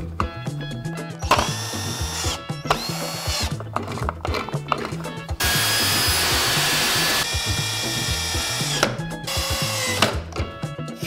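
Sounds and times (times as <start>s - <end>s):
background music: 0.0s - 11.0s
power drill whining: 1.2s - 4.5s, 5.4s - 10.2s.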